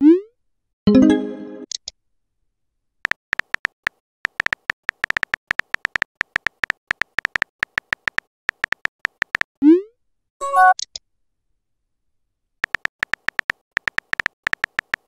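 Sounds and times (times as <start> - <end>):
phone keyboard tap clicks: 3.1 - 9.5, 12.6 - 15.0.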